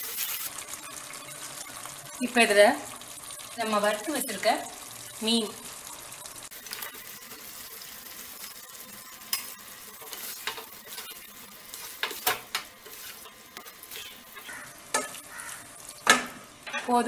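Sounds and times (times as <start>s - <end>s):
fish sizzling in sauce: 0.0s - 17.0s
spatula knocking and scraping pan: 9.3s - 11.1s, 11.7s - 17.0s.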